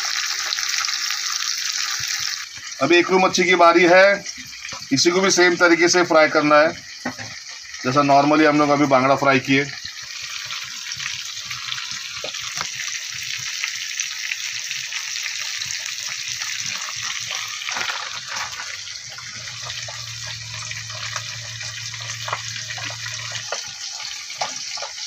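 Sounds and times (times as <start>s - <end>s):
fish sizzling in hot oil: 0.0s - 25.0s
low hum: 19.2s - 23.4s.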